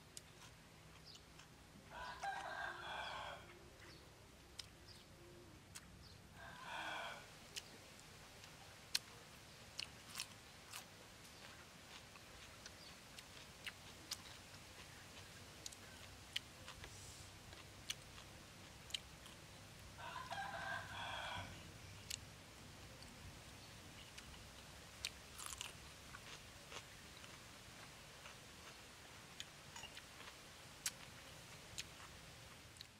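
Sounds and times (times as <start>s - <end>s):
crunchy chewing: 0.0s - 3.2s, 7.5s - 22.3s, 24.0s - 32.9s
rooster crowing: 1.9s - 3.5s, 6.3s - 7.3s, 20.0s - 21.6s
biting into cucumber: 25.0s - 27.4s.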